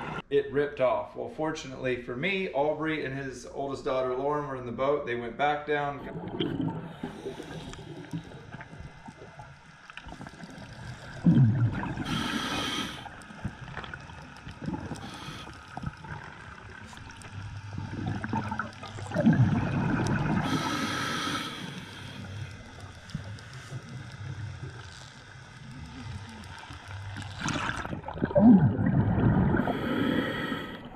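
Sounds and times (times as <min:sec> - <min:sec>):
low underwater rumble: 0:06.0 - 0:30.9
diver breathing through regulator: 0:06.6 - 0:08.8, 0:10.1 - 0:24.8, 0:29.1 - 0:30.9.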